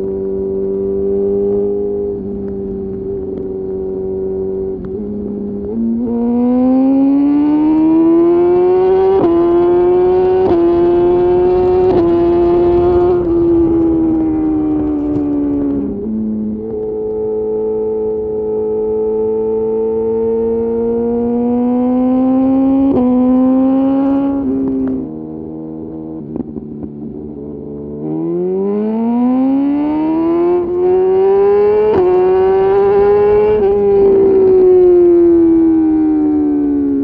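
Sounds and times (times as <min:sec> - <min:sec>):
motorcycle engine revving: 0:00.0 - 0:37.0.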